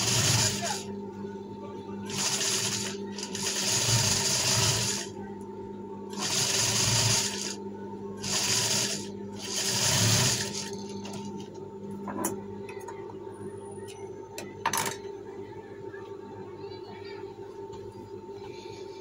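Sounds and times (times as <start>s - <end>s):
sewing machine stitching: 0.0s - 0.8s, 2.1s - 5.1s, 6.1s - 7.6s, 8.2s - 10.8s
motor humming: 2.0s - 5.3s, 6.1s - 7.6s, 8.2s - 11.4s.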